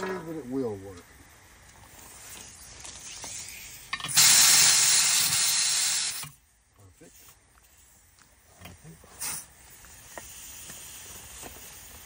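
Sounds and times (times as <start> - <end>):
gas hissing: 1.8 - 6.4, 8.9 - 12.0.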